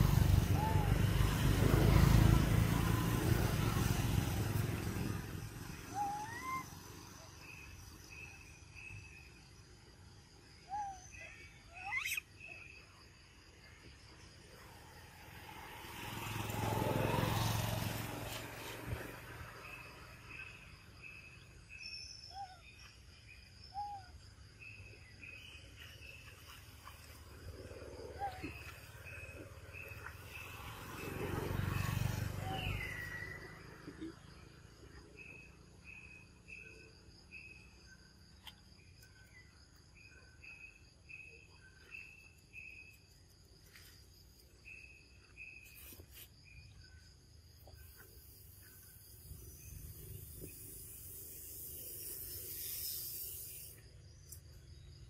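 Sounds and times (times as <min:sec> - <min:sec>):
insects trilling: 0:00.0 - 0:55.0
bird chirping: 0:04.9 - 0:09.6, 0:10.3 - 0:13.1.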